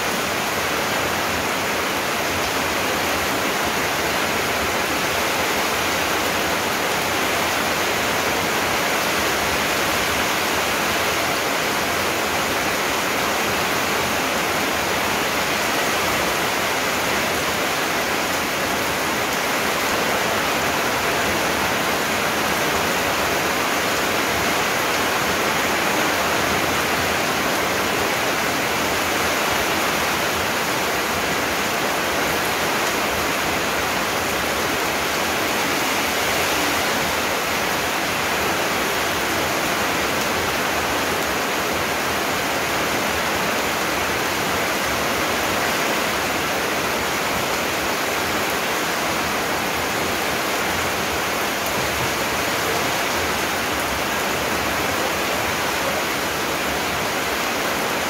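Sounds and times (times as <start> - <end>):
heavy rain pouring: 0.0 - 58.0.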